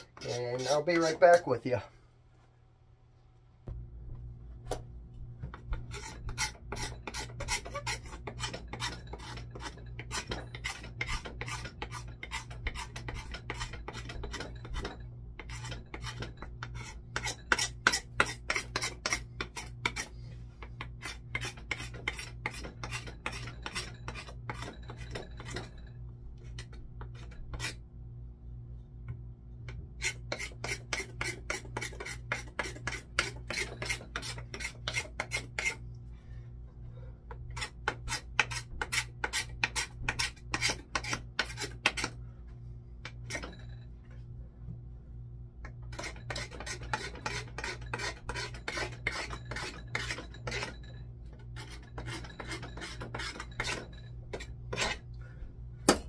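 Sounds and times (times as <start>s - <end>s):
knife scraping wooden handle: 0.0s - 1.5s, 5.5s - 27.8s, 30.0s - 35.8s, 37.3s - 42.2s, 45.9s - 55.1s.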